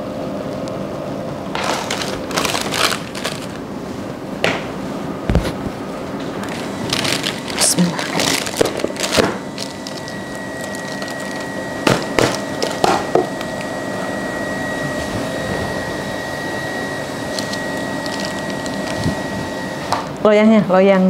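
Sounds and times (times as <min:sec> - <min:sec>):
mechanical whir with high whine: 0:03.5 - 0:20.5.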